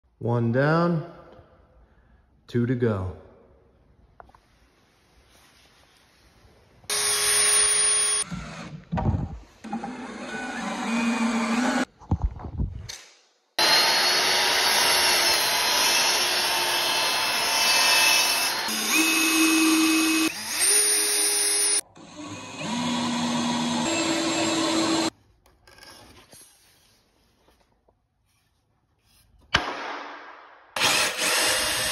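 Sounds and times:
miter saw cutting wood: 6.9s - 8.8s, 9.6s - 11.9s, 13.6s - 25.1s, 30.8s - 31.9s
power tools running: 6.9s - 8.9s, 9.6s - 11.9s, 13.6s - 25.1s, 30.8s - 31.9s.

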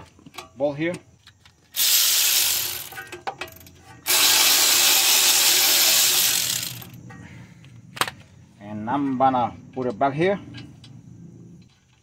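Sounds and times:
power tool spinning a bolt: 1.8s - 7.0s.

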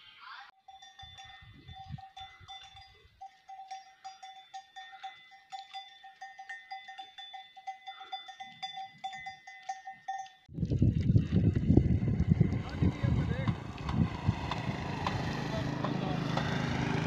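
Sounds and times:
camel bells clanking: 0.5s - 10.5s
wind on microphone: 10.5s - 15.8s.

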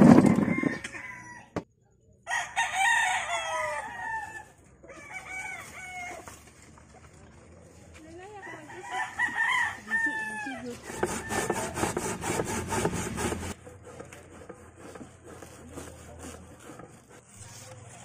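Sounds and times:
rooster crowing: 0.2s - 1.6s, 2.3s - 6.4s, 8.4s - 11.9s
cassava scraping on metal grater: 10.6s - 18.0s.

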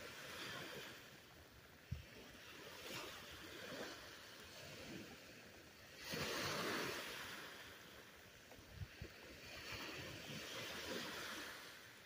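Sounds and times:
surf washing on sandy beach: 0.0s - 12.0s
wind noise: 8.5s - 11.7s.

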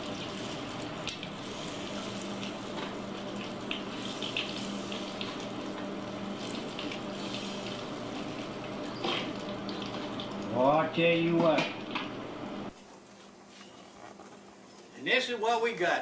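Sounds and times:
fish deep frying in oil: 0.0s - 12.6s.

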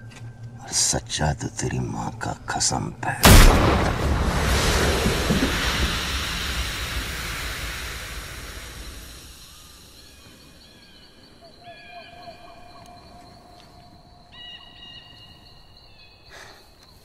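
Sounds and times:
rifle shot tail: 3.2s - 9.8s
faint bird calls: 4.6s - 17.0s.

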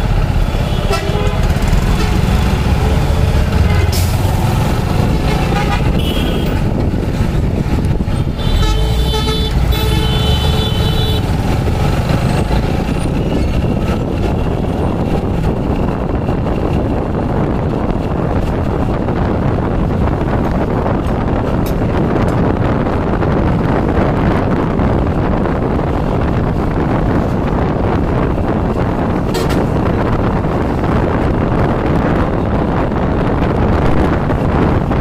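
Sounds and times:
traffic rumble: 0.0s - 35.0s
vehicle horn honking: 0.6s - 2.2s, 5.3s - 6.6s, 8.4s - 11.3s.

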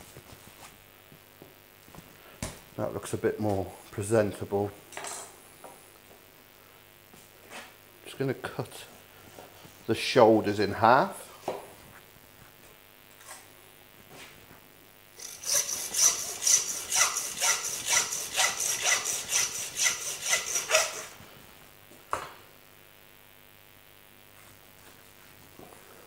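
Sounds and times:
bone saw rasping: 15.2s - 21.2s.

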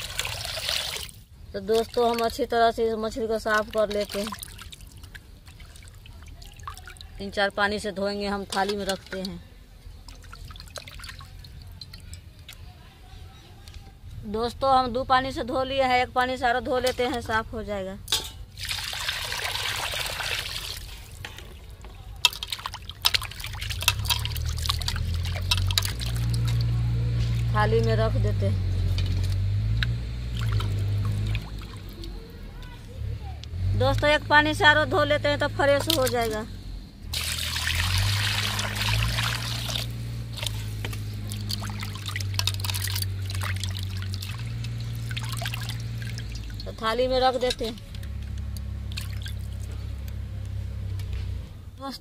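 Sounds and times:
water pouring into metal pan: 0.0s - 1.2s, 10.0s - 12.3s, 18.1s - 27.6s, 30.3s - 32.2s, 37.1s - 46.8s, 47.4s - 49.7s
hands sloshing water: 3.4s - 7.2s, 10.0s - 12.1s, 18.6s - 27.5s, 30.3s - 32.2s, 37.1s - 46.8s, 47.6s - 49.8s.

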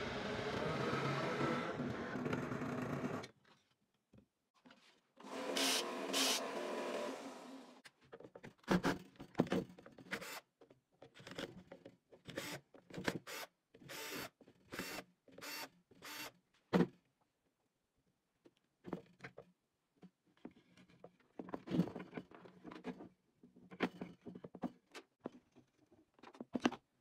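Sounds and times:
cordless drill trigger bursts: 5.2s - 7.6s
small electric motor running: 5.2s - 7.8s.

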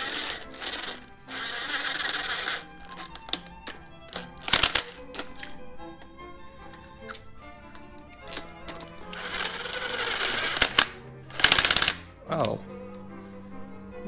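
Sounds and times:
cordless drill spinning: 0.0s - 12.0s
string quartet music: 0.0s - 14.0s.

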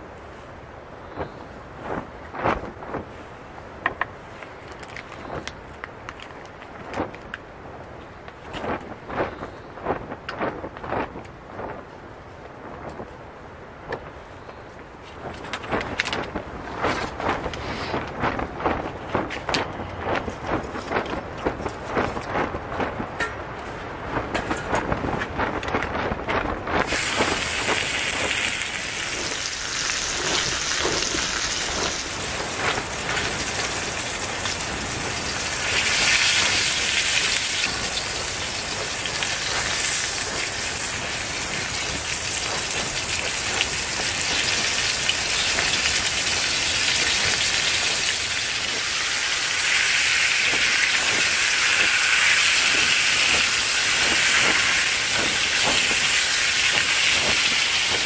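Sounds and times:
bacon sizzling and spitting: 26.8s - 58.0s.

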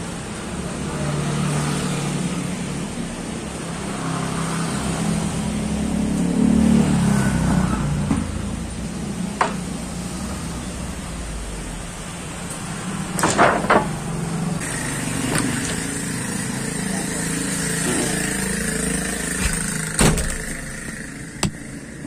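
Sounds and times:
knock of wooden boards: 13.2s - 14.0s
vehicle engine running: 14.2s - 22.0s.

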